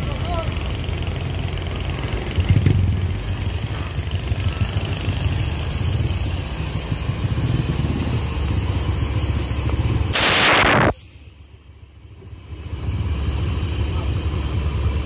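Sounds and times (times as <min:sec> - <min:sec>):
diesel bus engine idling: 0:00.0 - 0:15.0.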